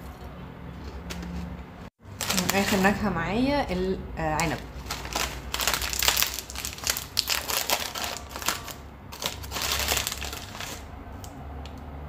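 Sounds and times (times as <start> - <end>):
plastic snack packet crinkling: 2.1 - 3.0, 4.4 - 10.9.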